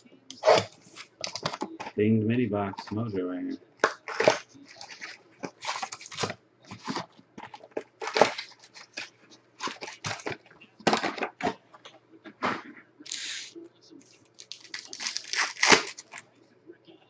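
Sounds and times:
plastic wrappers crinkling and tearing: 0.3 - 2.0, 3.8 - 11.6, 14.2 - 16.2.

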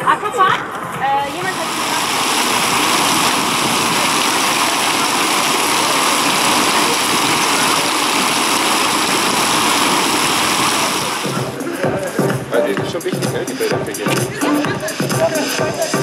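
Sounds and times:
water spraying and splashing: 1.0 - 12.3.

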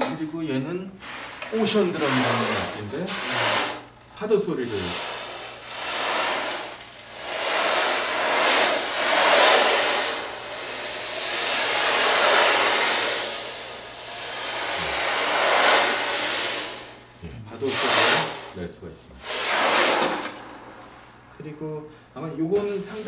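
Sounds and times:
ocean drum beads rolling: 1.0 - 17.1, 19.2 - 20.8.

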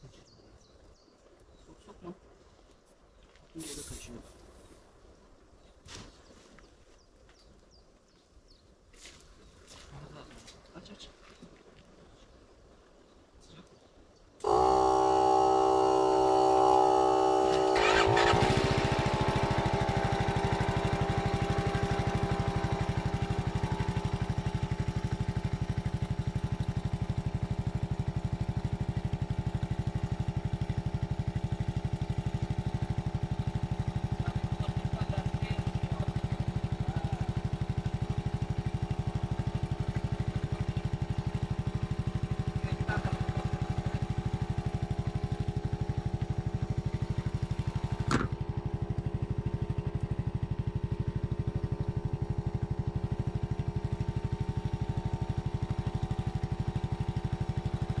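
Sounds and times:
air compressor running: 14.4 - 58.0.

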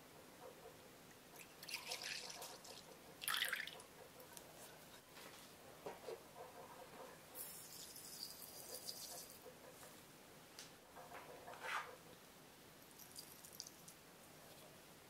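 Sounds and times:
salt sprinkle: 7.4 - 9.4
sugar pouring hiss: 7.4 - 9.4.

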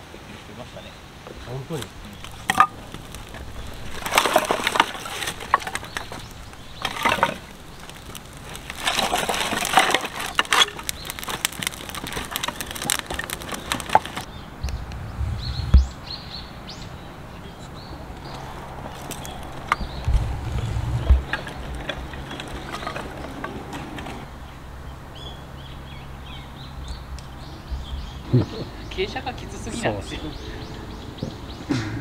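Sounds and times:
rustling and crackling: 1.3 - 16.2, 18.1 - 24.4
low rumble ending in thud: 14.6 - 16.2.

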